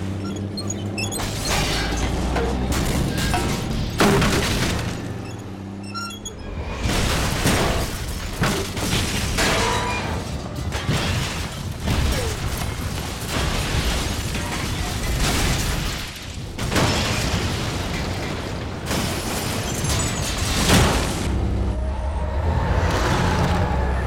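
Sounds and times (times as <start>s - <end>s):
glass shattering: 1.1s - 5.0s, 6.8s - 21.2s
debris crashing: 1.2s - 5.2s, 6.7s - 21.4s.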